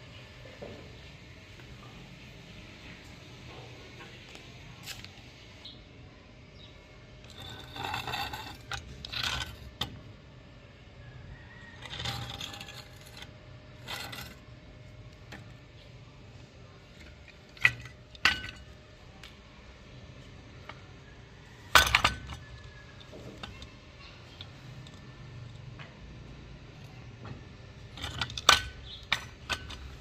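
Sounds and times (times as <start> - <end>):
light scraping: 7.2 - 10.0, 11.4 - 14.6.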